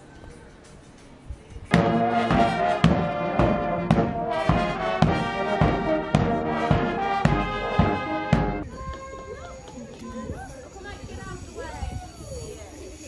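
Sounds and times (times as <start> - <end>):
bass drum beating: 1.7 - 8.6
marching brass band playing: 1.7 - 8.6.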